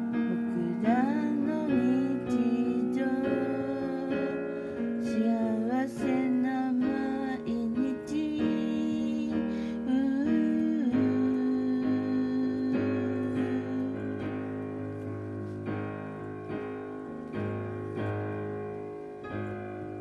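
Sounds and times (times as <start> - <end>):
woman's wordless singing: 0.0 - 14.6
piano playing chords: 0.0 - 20.0.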